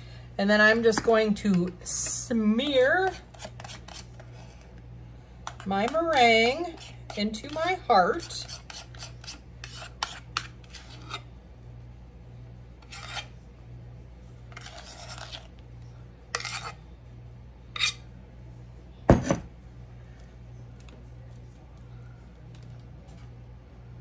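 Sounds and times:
steady low hum: 0.0s - 24.0s
utensil scraping meringue: 1.9s - 4.7s, 5.4s - 11.3s, 12.8s - 13.4s, 14.4s - 15.6s, 16.3s - 16.8s.

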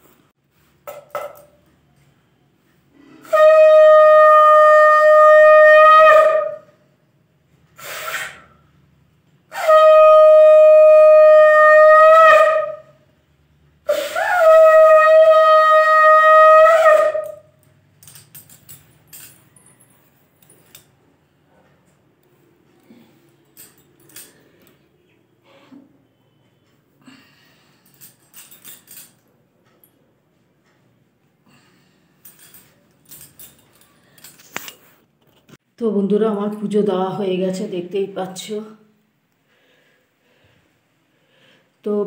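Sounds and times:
breath drawn: 7.8s - 8.6s
faint clicks and rustles: 32.2s - 35.6s.

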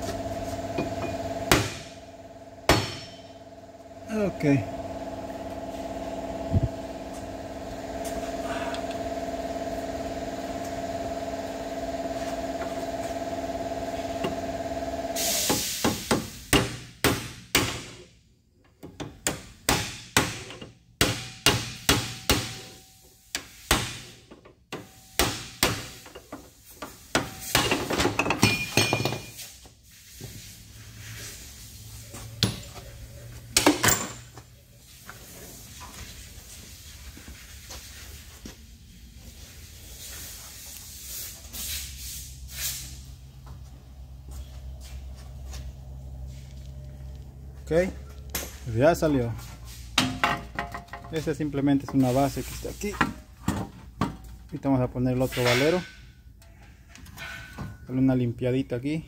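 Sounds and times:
hammer striking steel: 2.7s - 3.4s.

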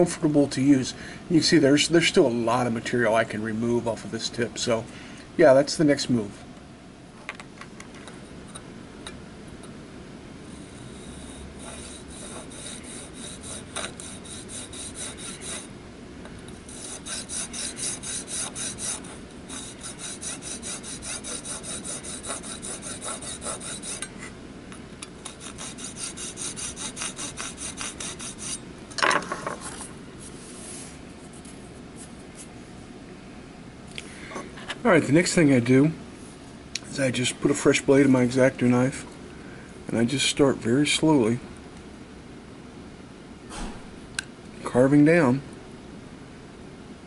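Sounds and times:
hand saw rasping through plastic: 11.1s - 15.7s, 16.7s - 24.1s, 25.2s - 28.6s.

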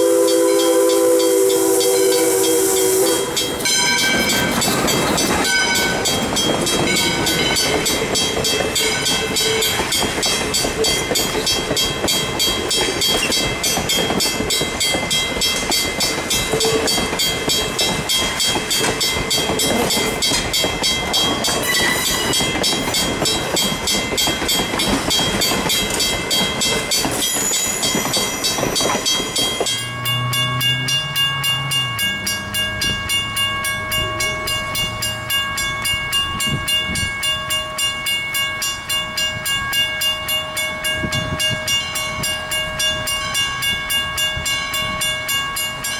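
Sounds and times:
distant steam whistle: 0.0s - 4.4s
train wheels clacking on rails: 0.0s - 45.9s.

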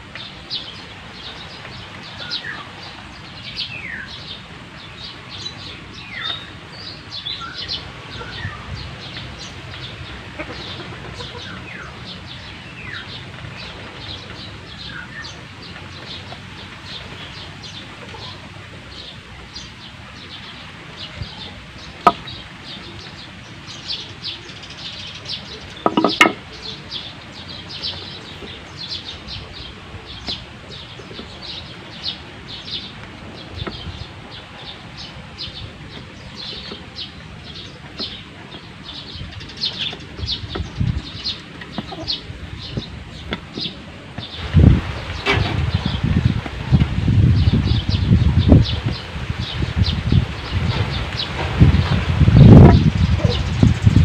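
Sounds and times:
small birds chirping: 0.0s - 54.0s
chickens clucking: 7.3s - 54.0s
sharp knocks: 25.8s - 26.4s.

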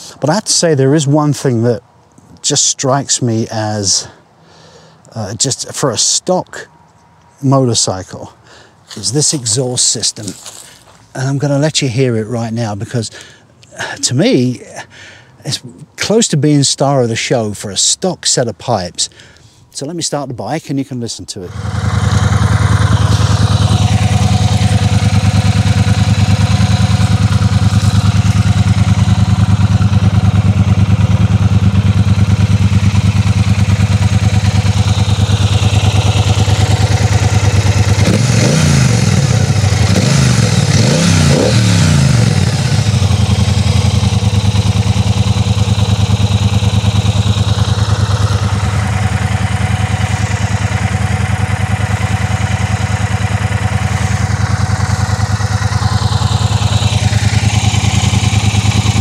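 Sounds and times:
motorcycle engine idling: 21.5s - 59.0s.

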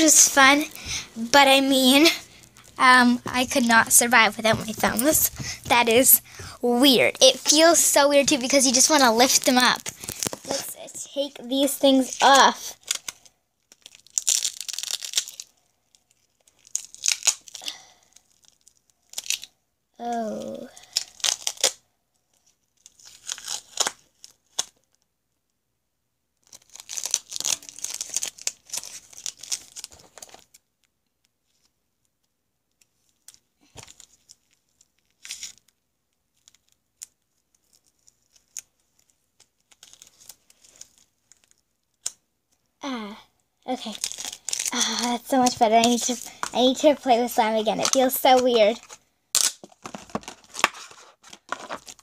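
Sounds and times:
tape crinkling: 0.0s - 19.5s, 20.1s - 25.0s, 26.4s - 42.7s, 43.7s - 52.0s
faint crackles: 0.0s - 21.7s
tape tearing: 7.5s - 10.7s, 11.8s - 15.5s, 16.1s - 19.5s, 20.8s - 21.8s, 22.8s - 24.8s, 26.4s - 30.6s, 33.2s - 35.7s, 36.3s - 42.2s, 43.9s - 46.5s, 47.8s - 52.0s.

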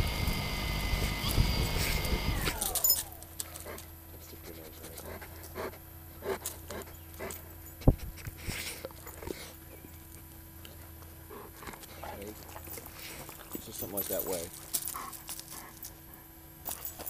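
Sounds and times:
dog panting and sniffing: 3.4s - 17.0s.

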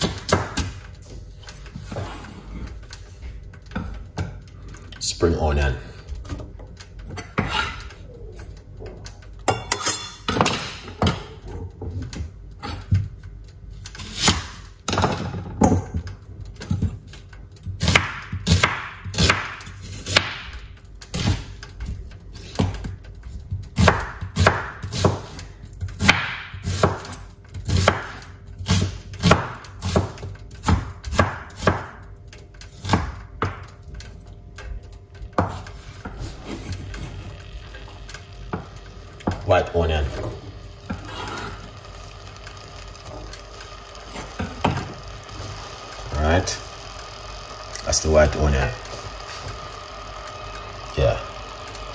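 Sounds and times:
knife chopping on wooden board: 17.8s - 20.4s, 23.8s - 25.4s, 26.0s - 32.0s, 35.4s - 35.6s.

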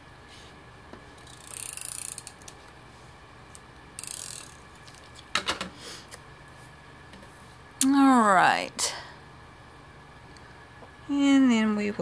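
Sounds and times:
tape runner ratcheting click-whir: 1.2s - 2.6s, 3.5s - 5.0s.

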